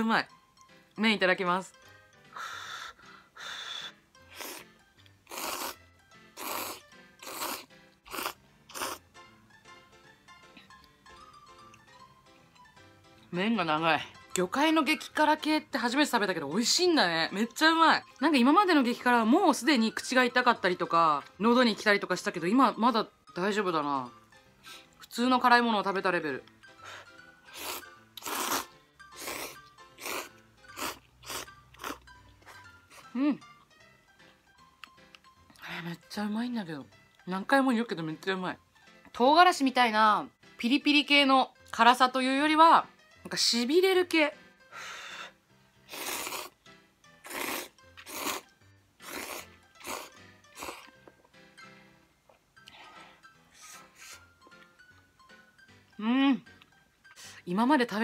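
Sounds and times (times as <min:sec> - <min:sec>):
faint background music: 0:00.0 - 0:58.0
person slurping noodles: 0:04.3 - 0:09.1, 0:27.4 - 0:32.0, 0:45.9 - 0:46.6, 0:47.2 - 0:50.9.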